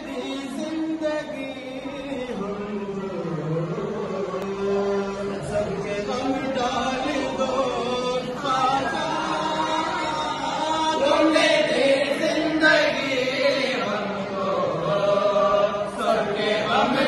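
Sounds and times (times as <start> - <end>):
men chanting together: 6.2 - 17.0.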